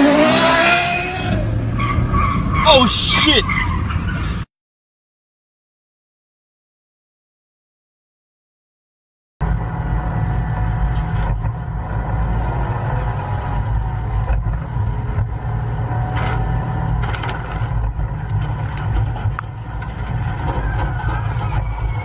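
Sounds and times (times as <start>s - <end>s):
truck engine droning: 9.4s - 22.0s.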